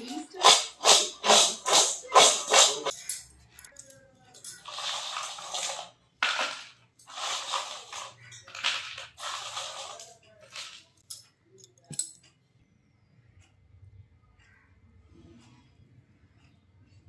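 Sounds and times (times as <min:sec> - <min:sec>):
chips rattling in metal bowl: 0:00.0 - 0:11.2.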